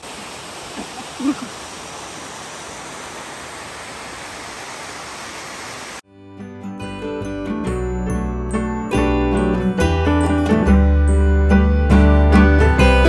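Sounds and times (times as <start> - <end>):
waterfall cascading over rocks: 0.0 - 6.0.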